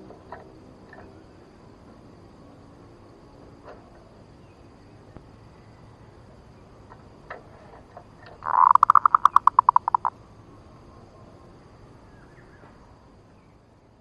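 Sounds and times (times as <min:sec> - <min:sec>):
dove cooing song: 0:08.4 - 0:10.1.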